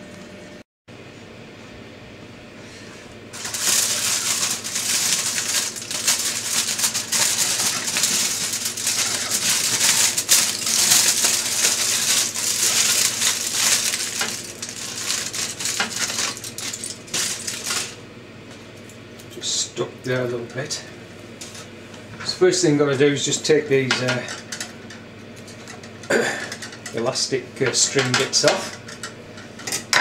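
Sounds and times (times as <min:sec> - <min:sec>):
aluminium foil crinkling: 0:03.3 - 0:18.0.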